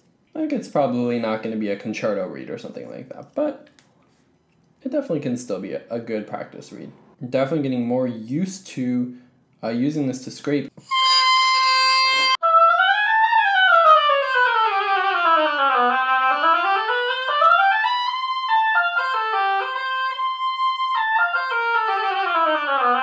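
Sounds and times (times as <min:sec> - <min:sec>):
oboe playing: 0:10.8 - 0:23.0.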